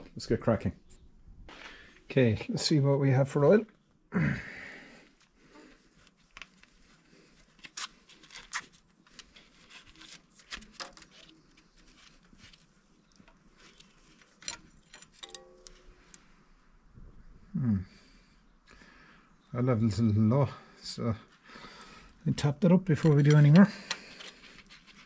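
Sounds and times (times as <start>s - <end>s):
faint clicks and scrapes: 5.1s - 16.3s, 22.9s - 25.0s.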